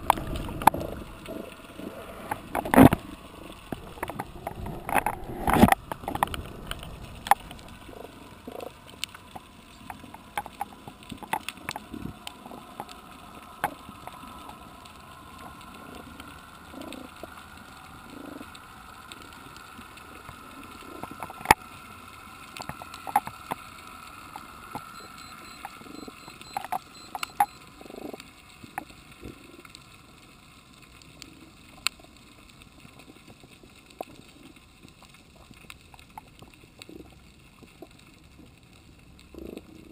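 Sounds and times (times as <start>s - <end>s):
faint steady whine: 0.0s - 39.9s
underwater clicks and pops: 2.2s - 7.8s.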